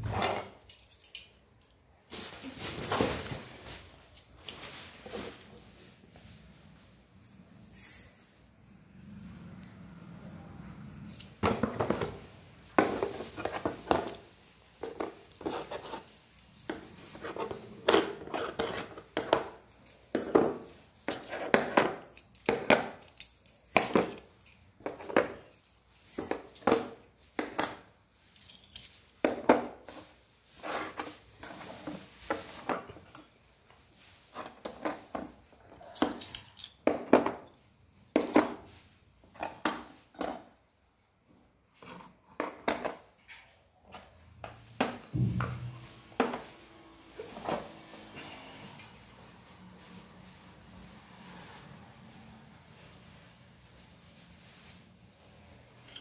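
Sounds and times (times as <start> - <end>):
metal parts clinking and clanking: 0.3 - 1.8, 21.9 - 27.0, 27.6 - 29.1, 35.8 - 37.6.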